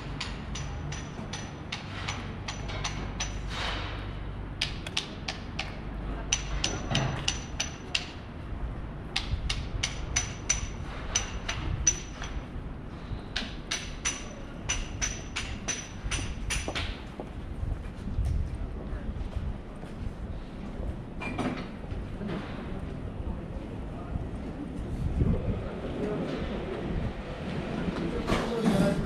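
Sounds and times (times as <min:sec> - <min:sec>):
low street rumble: 0:00.0 - 0:29.0
sharp metallic tapping: 0:00.1 - 0:03.5, 0:13.4 - 0:16.9.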